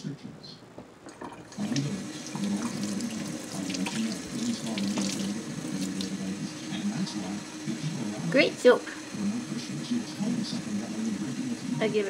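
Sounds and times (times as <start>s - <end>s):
faucet running into metal sink: 1.1s - 8.1s.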